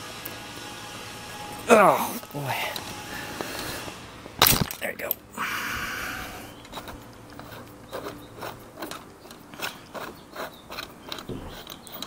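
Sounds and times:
ratchet wrench clicking: 6.6 - 12.0.

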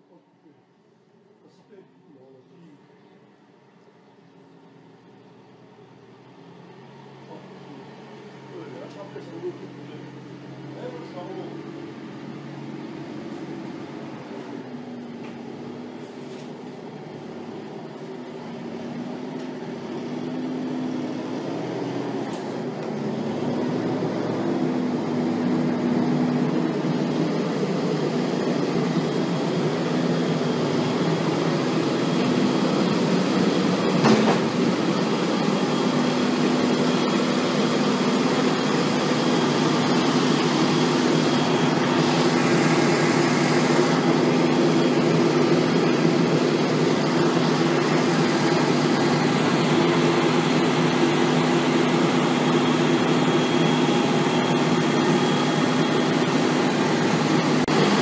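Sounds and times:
tractor diesel engine under load: 4.8 - 58.0
sharp knock: 34.0 - 34.5.

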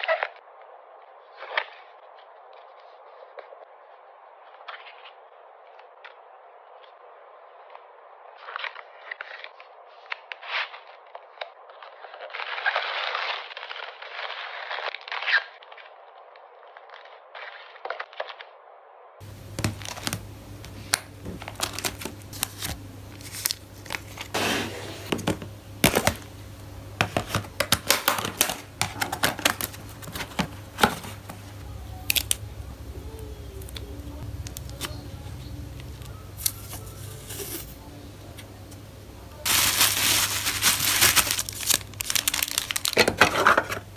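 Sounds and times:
plastic sleeves crinkling: 19.2 - 38.8, 39.4 - 43.9
low steady hum: 19.2 - 43.9.

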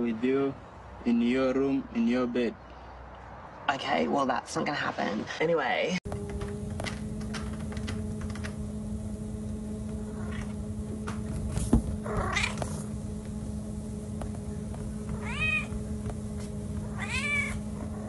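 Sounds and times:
low hum: 6.1 - 18.0
cat meowing: 15.2 - 15.8, 16.8 - 17.7.

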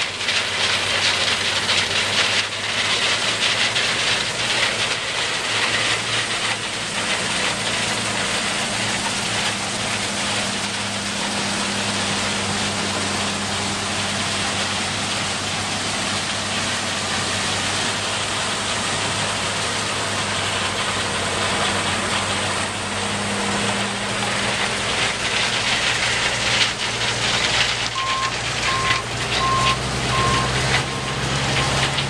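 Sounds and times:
combine harvester running: 0.0 - 32.0
reversing alarm beeping: 28.0 - 31.8.

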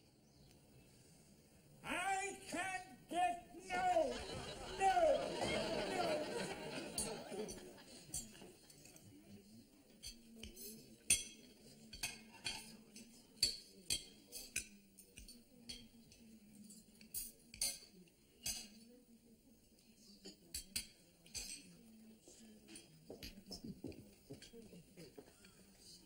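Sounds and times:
cutlery and crockery clinking: 5.4 - 9.1, 9.9 - 18.8, 20.2 - 21.8.

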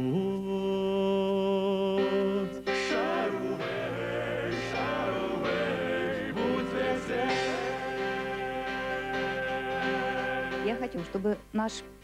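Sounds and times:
band accompaniment: 2.7 - 11.3
pop ballad singing: 4.6 - 11.0.

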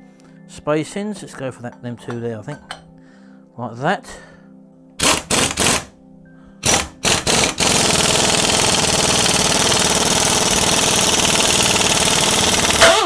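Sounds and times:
electric impact wrench hammering: 5.0 - 5.9, 6.6 - 13.0.

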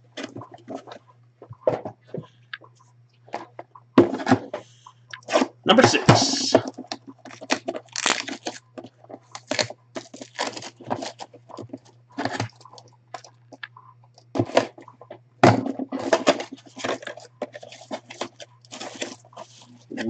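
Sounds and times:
plastic wrap crinkling and tearing: 6.8 - 12.6, 16.3 - 19.8.

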